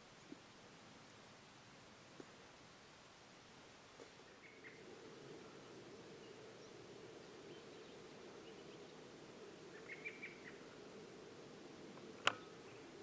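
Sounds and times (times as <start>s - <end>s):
faint steady hiss: 0.0s - 13.0s
small bird chirping: 4.2s - 4.9s, 5.6s - 10.8s.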